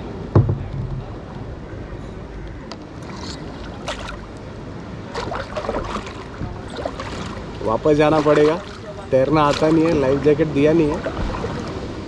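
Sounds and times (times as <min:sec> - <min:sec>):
paddle strokes splashing: 0:02.9 - 0:12.0
water wash: 0:02.9 - 0:12.0.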